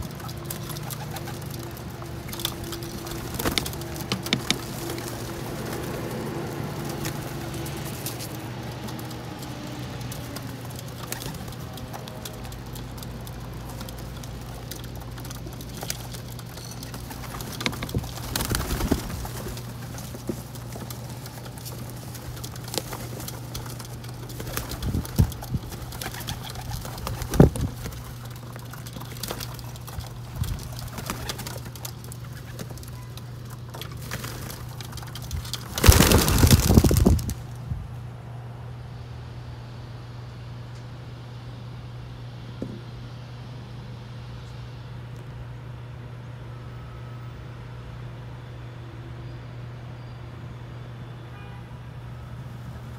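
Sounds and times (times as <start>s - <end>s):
pigeons cooing: 0.0s - 37.2s
pigeon wings flapping: 0.0s - 37.7s.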